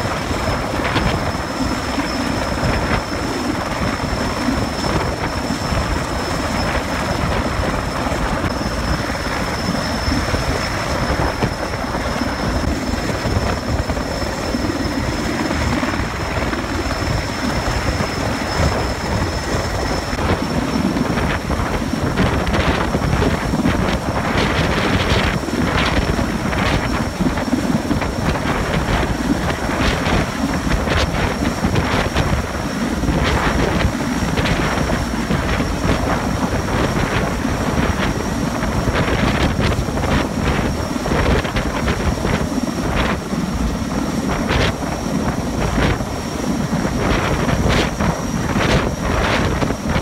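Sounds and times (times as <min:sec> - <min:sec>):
helicopter rotor and turbine noise: 0:00.0 - 0:50.0
thin high whine: 0:00.0 - 0:50.0.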